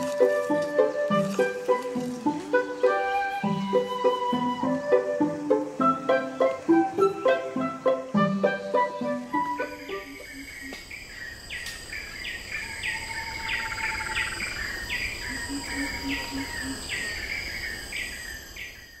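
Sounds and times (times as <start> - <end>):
high insect drone: 0.0 - 19.0
bird falling call: 9.6 - 18.2.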